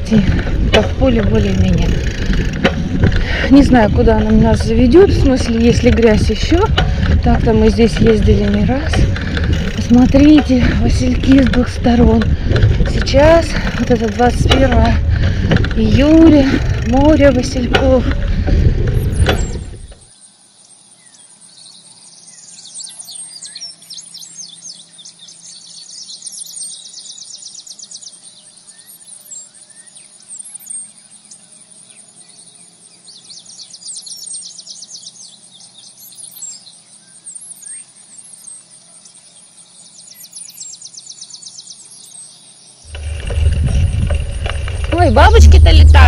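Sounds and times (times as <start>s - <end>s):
loud rumble: 0.0s - 20.1s, 42.9s - 46.0s
songbirds trilling: 0.0s - 46.0s
songbird chirps: 18.9s - 46.0s.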